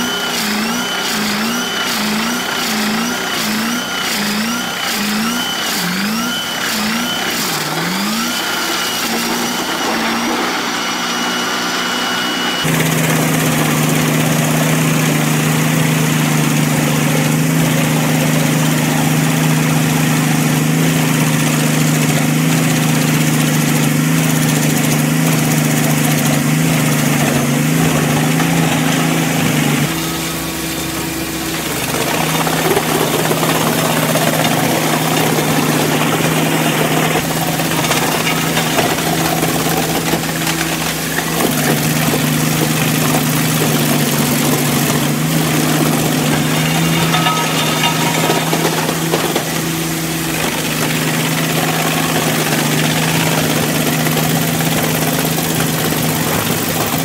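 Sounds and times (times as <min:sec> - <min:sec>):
wood chipper engine revving: 0:00.0 - 0:57.0
drum chipper humming: 0:12.2 - 0:57.0.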